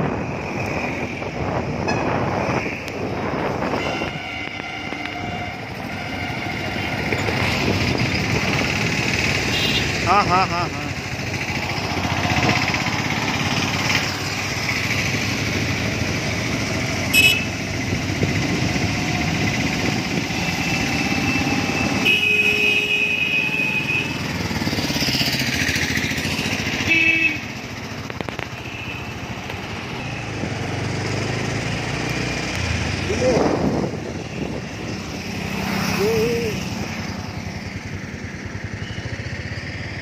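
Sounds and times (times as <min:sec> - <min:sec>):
engine and road noise: 0:00.0 - 0:40.0
car horn honks: 0:03.6 - 0:06.5, 0:09.4 - 0:10.0, 0:17.1 - 0:17.6, 0:22.0 - 0:24.2, 0:26.8 - 0:27.5.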